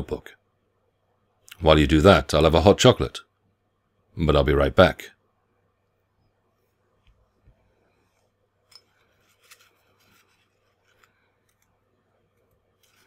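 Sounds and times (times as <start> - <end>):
faint scratchy clicks and scrapes: 6.6 - 13.0.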